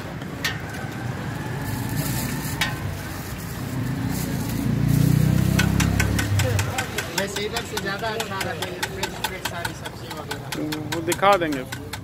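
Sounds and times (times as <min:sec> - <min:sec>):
low engine rumble: 0:00.0 - 0:07.8.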